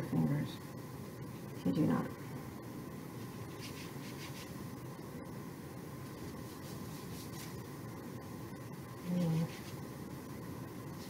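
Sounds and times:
steady low hiss: 0:00.0 - 0:11.0
fingertips rubbing paste: 0:03.4 - 0:04.6.

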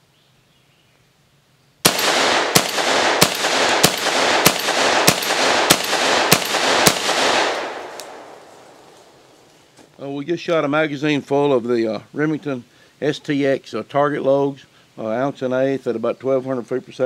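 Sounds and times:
shotgun shots echoing: 0:01.8 - 0:09.2.

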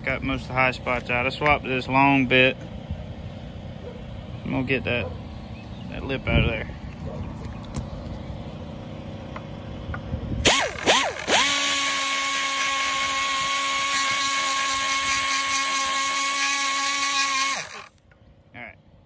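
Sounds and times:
low background hum: 0:00.0 - 0:19.0
air die grinder whine: 0:10.3 - 0:18.0.

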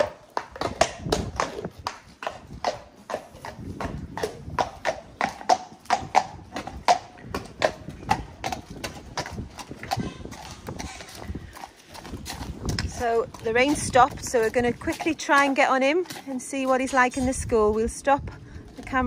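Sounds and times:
horse hooves clip-clopping: 0:00.0 - 0:19.0.

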